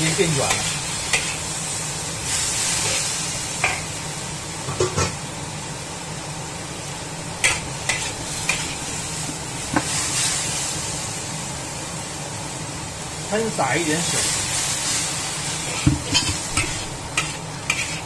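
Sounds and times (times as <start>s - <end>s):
spatula clinking and scraping wok: 0.0s - 1.5s, 2.7s - 3.9s, 7.4s - 8.9s, 15.6s - 18.0s
vegetables sizzling in a wok: 0.0s - 18.0s.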